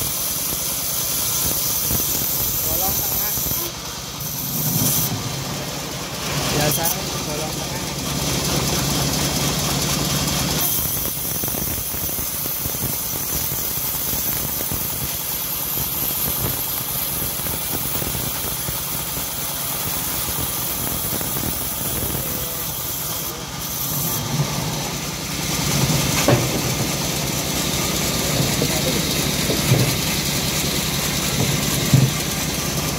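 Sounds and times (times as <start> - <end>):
band sawmill cutting wood: 0.0 - 32.9
short knocks: 31.4 - 32.3.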